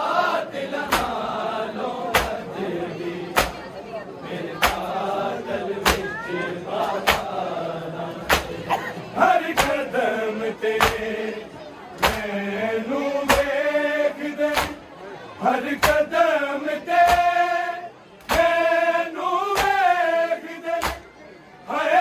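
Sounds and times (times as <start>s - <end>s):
voices chanting a lament: 0.0s - 22.0s
chest slapping in unison: 0.9s - 1.2s, 2.1s - 2.5s, 3.3s - 3.7s, 4.6s - 4.9s, 5.8s - 6.1s, 6.9s - 7.3s, 8.2s - 8.6s, 9.5s - 9.8s, 10.8s - 11.1s, 12.0s - 12.3s, 13.3s - 13.6s, 14.5s - 14.8s, 15.8s - 16.0s, 17.0s - 17.3s, 18.2s - 18.6s, 19.5s - 19.8s, 20.8s - 21.0s.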